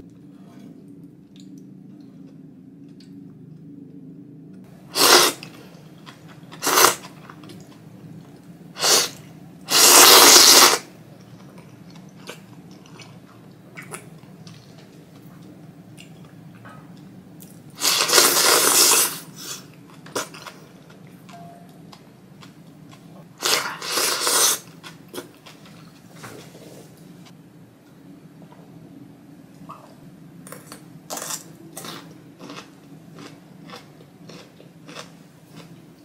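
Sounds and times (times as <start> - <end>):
person slurping noodles: 4.9 - 5.5, 6.6 - 7.1, 8.8 - 10.9, 17.8 - 19.6, 23.4 - 24.7.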